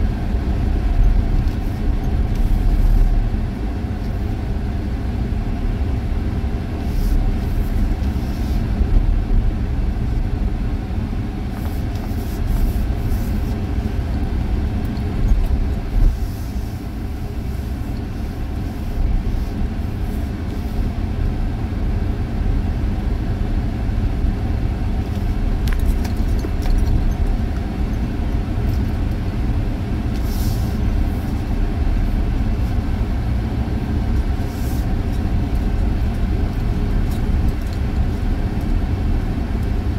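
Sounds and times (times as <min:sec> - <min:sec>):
vehicle engine and tyres rumble: 0:00.0 - 0:39.9.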